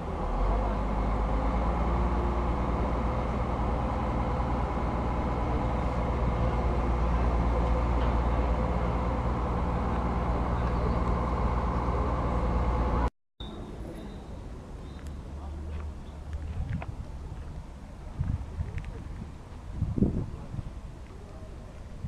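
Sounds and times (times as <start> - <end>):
heavy diesel engine under load: 0.0 - 13.1.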